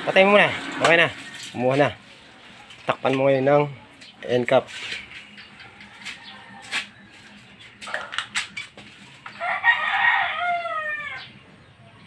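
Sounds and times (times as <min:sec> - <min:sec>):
rooster crowing: 0:05.6 - 0:08.1, 0:09.3 - 0:11.3.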